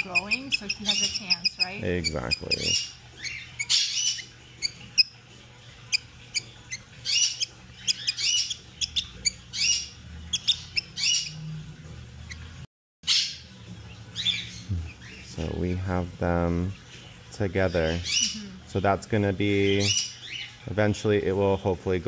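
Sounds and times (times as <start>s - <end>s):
budgie chick squawking: 0.0s - 5.2s, 5.8s - 11.4s.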